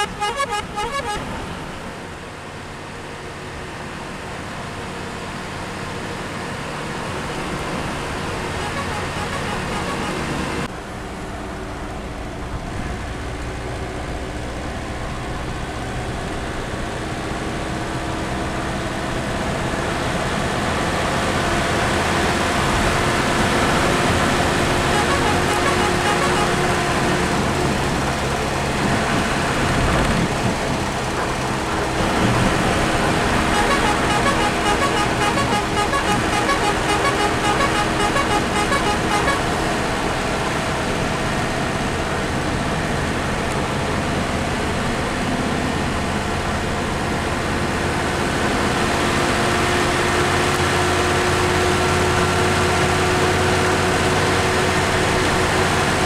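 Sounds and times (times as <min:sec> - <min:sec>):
horn rapid short notes: 0:00.0 - 0:01.4, 0:08.3 - 0:10.7, 0:24.5 - 0:27.3, 0:33.1 - 0:39.8
horn long blasts: 0:00.0 - 0:01.6, 0:07.8 - 0:10.7, 0:22.9 - 0:28.0, 0:31.7 - 0:40.2
truck engine running: 0:00.0 - 0:49.6
road noise in cab: 0:00.0 - 0:56.0.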